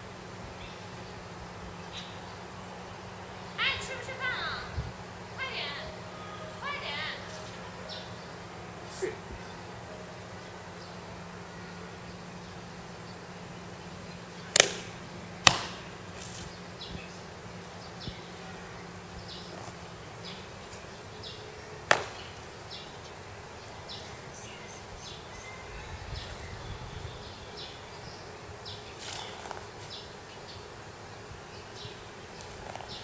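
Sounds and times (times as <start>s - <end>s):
sharp cracks of movements: 14.5s - 16.6s.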